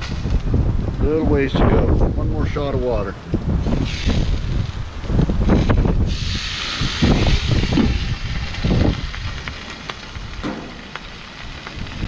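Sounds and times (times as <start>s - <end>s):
wind buffeting microphone: 0.0s - 12.0s
water hissing on hot griddle: 3.5s - 12.0s.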